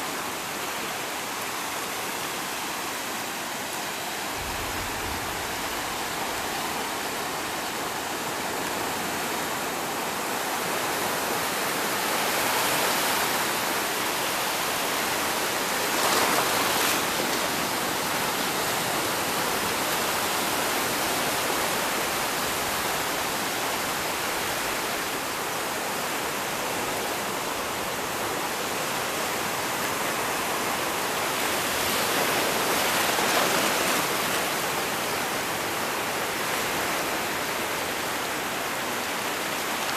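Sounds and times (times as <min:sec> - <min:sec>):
surf washing over rocks: 0:00.0 - 0:39.9.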